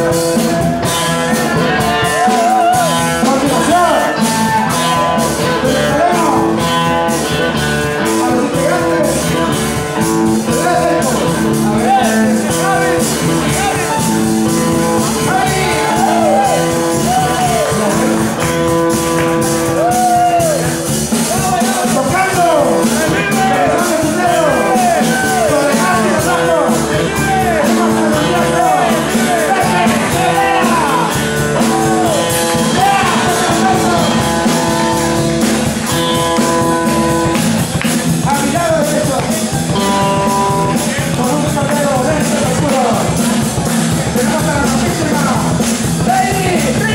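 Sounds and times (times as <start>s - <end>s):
drum kit beat: 0.0s - 46.9s
electric guitars: 0.0s - 46.9s
live rock band playing: 0.0s - 46.9s
man singing: 1.3s - 7.0s, 10.3s - 18.3s, 21.6s - 34.8s, 38.2s - 43.2s
person singing: 21.8s - 35.6s.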